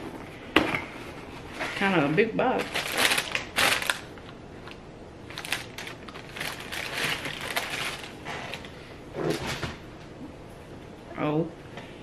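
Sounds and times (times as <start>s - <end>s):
tissue paper rustling: 2.6s - 4.0s, 5.3s - 8.6s.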